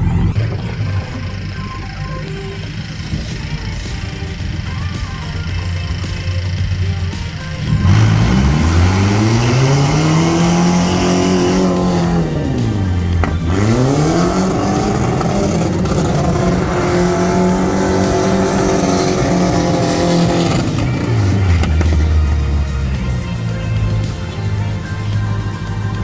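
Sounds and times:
engine revving hard: 0:07.6 - 0:23.6.

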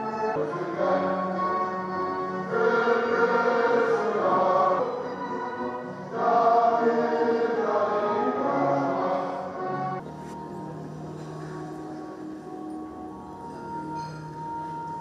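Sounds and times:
choir singing long held notes: 0:00.0 - 0:10.1
musical accompaniment: 0:00.0 - 0:15.0.

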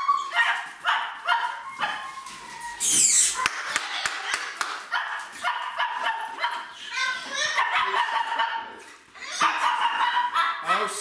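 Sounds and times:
dog whining and yelping: 0:00.0 - 0:00.6, 0:01.3 - 0:03.4.

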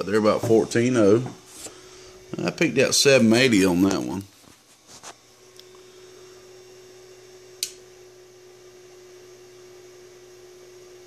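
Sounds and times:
electrical hum: 0:00.0 - 0:11.0
sharp click: 0:07.6 - 0:07.8.

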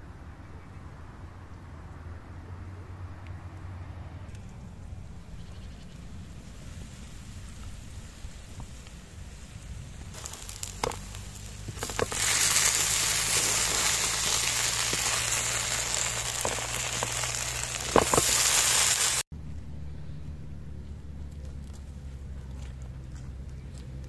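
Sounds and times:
fat sizzling in a pan: 0:10.1 - 0:19.2.

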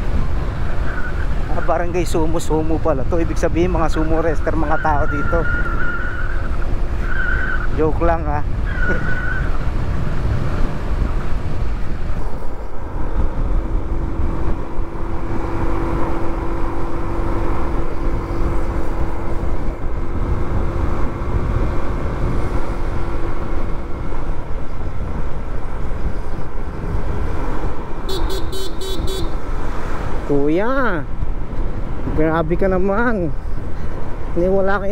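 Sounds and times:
wind noise: 0:00.0 - 0:34.9
horn beeping: 0:28.1 - 0:29.4.

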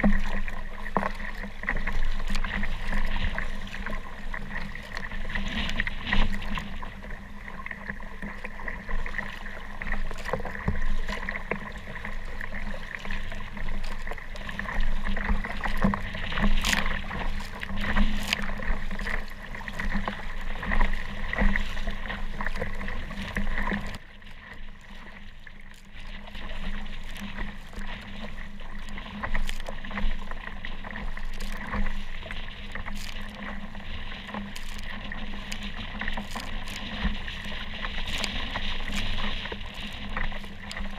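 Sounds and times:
water splashing around kayak: 0:00.0 - 0:40.9.

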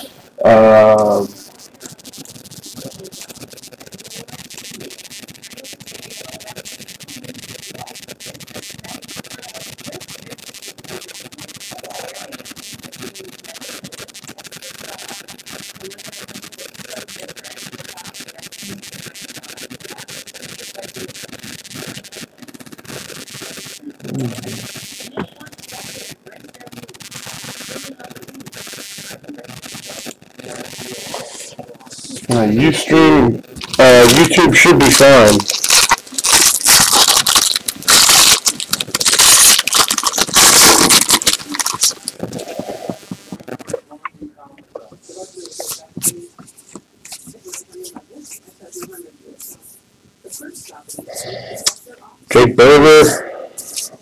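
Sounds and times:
cards rubbing and clicking: 0:30.5 - 0:43.8, 0:45.1 - 0:49.6, 0:52.6 - 0:54.0
foil wrapper tearing and crinkling: 0:33.5 - 0:43.8.

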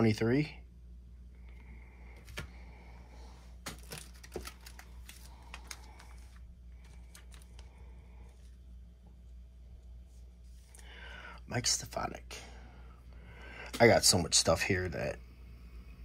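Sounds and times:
trading cards clicking and rustling: 0:02.2 - 0:02.6, 0:03.6 - 0:07.7.

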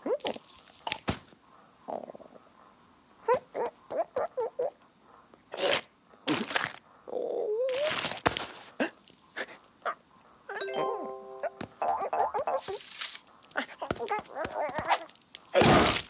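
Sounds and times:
cartoon bird squawking: 0:11.8 - 0:12.8.

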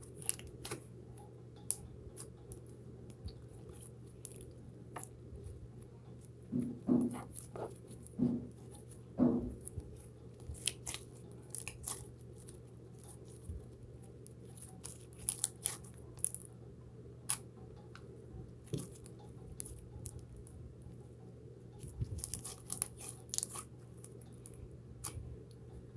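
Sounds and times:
slime clicking and crackling: 0:00.0 - 0:00.9, 0:09.6 - 0:16.4, 0:18.6 - 0:20.5, 0:21.8 - 0:25.2
slime squelching: 0:00.0 - 0:00.9, 0:06.2 - 0:16.4, 0:21.8 - 0:25.2.

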